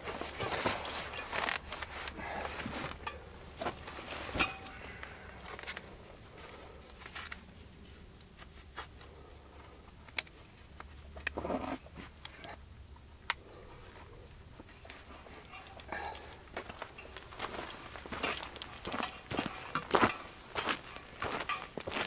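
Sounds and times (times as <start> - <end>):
straps and fabric rustling: 0.0 - 9.1.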